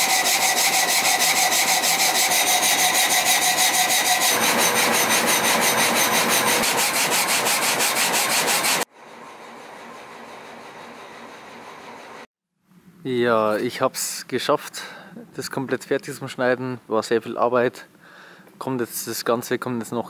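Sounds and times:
band saw cutting a log: 0.0 - 8.9.

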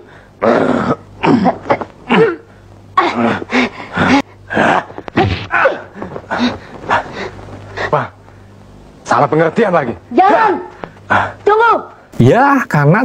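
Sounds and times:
low steady hum: 0.0 - 13.0
people shouting and grunting: 3.0 - 8.2, 10.1 - 12.0.

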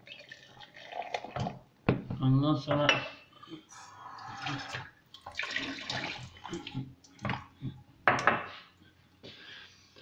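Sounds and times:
water running in a kitchen: 0.0 - 1.7, 3.7 - 8.4.

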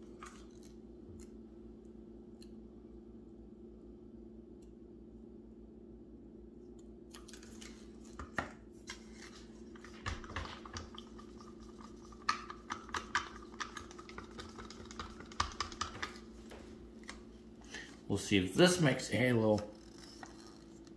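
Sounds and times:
paint cups clicking and scraping: 7.4 - 18.1, 19.5 - 20.9.

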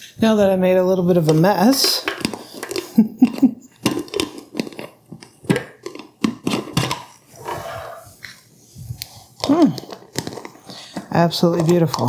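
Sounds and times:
plastic lid screwing onto glass jar: 1.2 - 7.2, 8.9 - 12.0.

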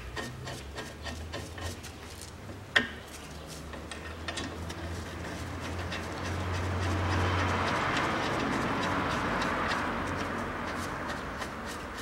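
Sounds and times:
metal bolts clicking and rubbing: 0.0 - 3.0, 3.7 - 12.0.

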